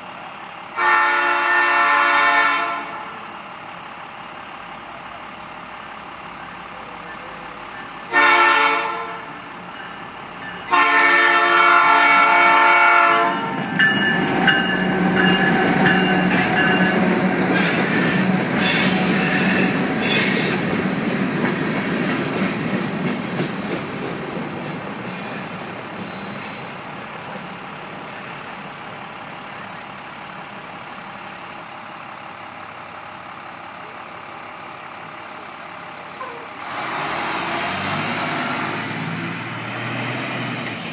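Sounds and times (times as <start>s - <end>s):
locomotive horn blasts: 0.8s - 3.3s, 8.1s - 9.4s, 10.6s - 13.9s
train wheels squealing: 6.8s - 8.1s, 13.4s - 21.1s, 21.7s - 28.5s
rail clatter: 9.2s - 26.6s.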